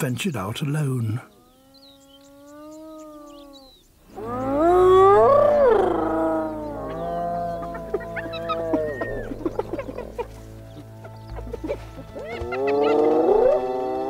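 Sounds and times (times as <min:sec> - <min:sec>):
hyenas whooping: 0:01.5 - 0:10.2, 0:11.6 - 0:14.0.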